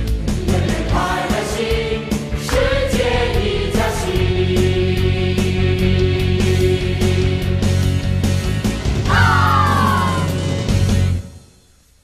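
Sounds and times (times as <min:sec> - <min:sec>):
voice gliding downward: 0:09.1 - 0:10.4.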